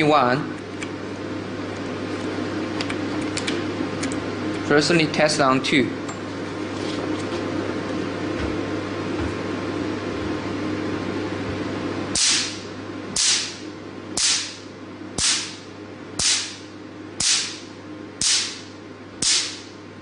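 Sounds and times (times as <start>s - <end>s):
steady hum: 0.0s - 20.0s
laser pulse snaps: 12.2s - 12.6s, 13.2s - 13.6s, 14.2s - 14.6s, 15.2s - 15.6s, 16.2s - 16.6s, 17.2s - 19.7s.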